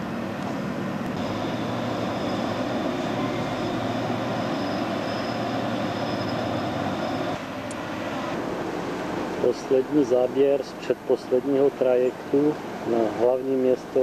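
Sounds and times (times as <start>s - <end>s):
rushing noise: 0.0s - 11.0s
ship engines droning: 0.0s - 14.0s
faint high whine: 1.1s - 8.5s.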